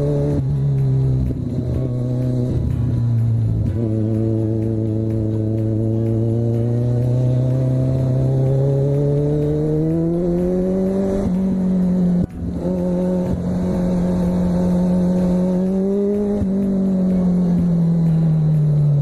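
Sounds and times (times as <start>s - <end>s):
motorcycle engine accelerating: 0.0s - 19.0s.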